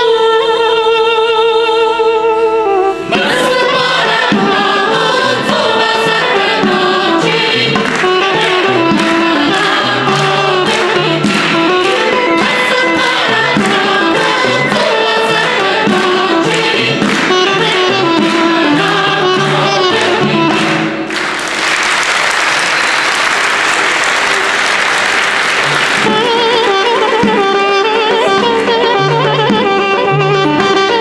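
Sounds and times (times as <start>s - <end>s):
wind instrument melody: 0.0s - 21.2s, 22.6s - 31.0s
plucked instrumental accompaniment: 0.0s - 21.3s, 25.1s - 31.0s
women's choir singing: 3.1s - 20.9s
applause: 20.0s - 26.3s.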